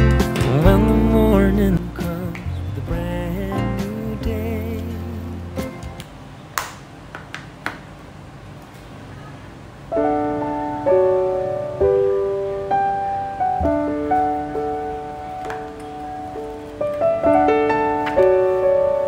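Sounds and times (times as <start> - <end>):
piano music: 0.0 - 6.0, 9.9 - 19.0.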